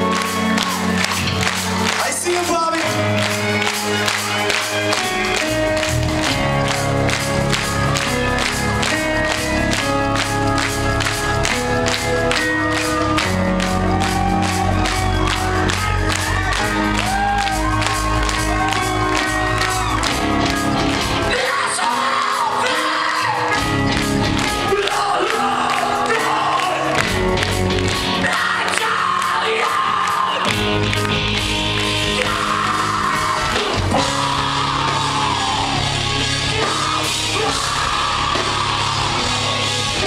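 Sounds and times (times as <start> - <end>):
steady drum beat: 0.0 - 21.4
person singing: 0.0 - 23.8, 24.4 - 27.2, 28.0 - 30.8, 32.0 - 40.0
live rock band playing: 0.0 - 40.0.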